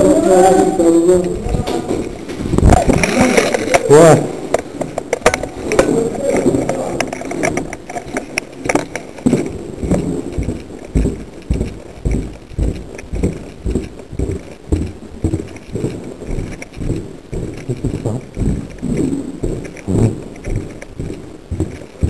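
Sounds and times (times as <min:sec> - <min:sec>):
footsteps on hard floor: 0:00.0 - 0:22.0
gear rustling and clicking: 0:00.0 - 0:22.0.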